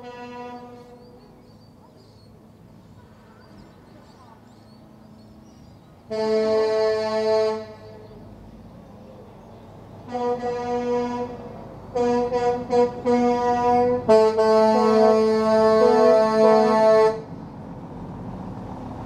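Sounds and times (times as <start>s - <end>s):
truck air horns blasting: 0.0s - 1.1s, 6.1s - 8.0s, 10.0s - 17.3s.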